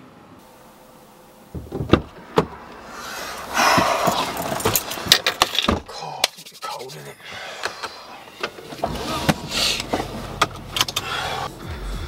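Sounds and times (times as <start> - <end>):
dull thump: 1.5 - 2.6
knocks and clicks in car cabin: 1.5 - 2.6.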